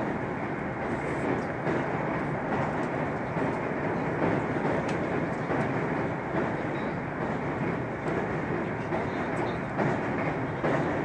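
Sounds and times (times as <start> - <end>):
train wheels rumbling: 0.0 - 11.0.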